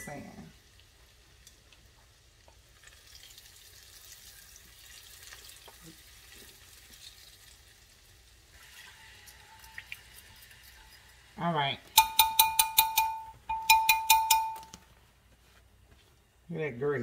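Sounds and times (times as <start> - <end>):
hot oil sizzling and crackling: 0.0 - 12.8.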